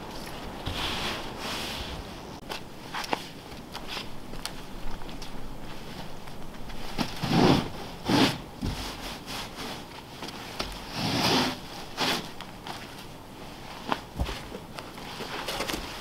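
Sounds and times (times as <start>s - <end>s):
snow brush scraping glass: 10.9s - 12.3s.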